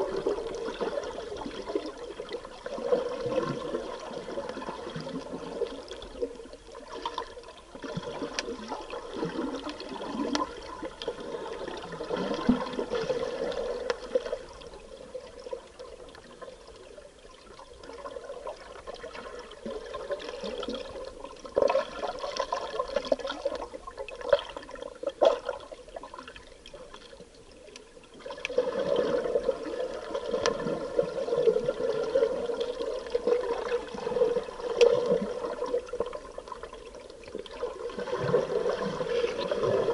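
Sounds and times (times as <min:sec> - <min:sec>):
water splashing and gurgling: 0:00.0 - 0:39.9.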